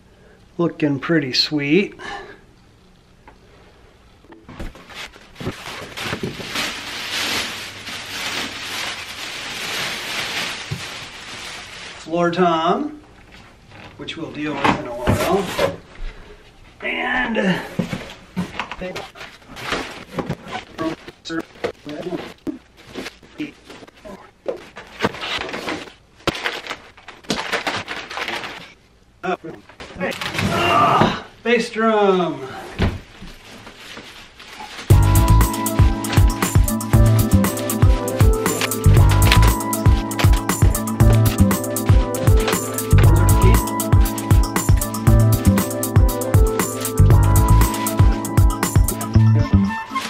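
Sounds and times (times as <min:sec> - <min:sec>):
cardboard scraping and rustling: 0:04.5 - 0:11.9, 0:18.9 - 0:21.2, 0:24.5 - 0:28.8, 0:38.0 - 0:41.4
plastic bag rustling: 0:04.5 - 0:12.4, 0:17.9 - 0:24.0, 0:24.6 - 0:28.8, 0:33.0 - 0:49.1, 0:49.8 - 0:50.0.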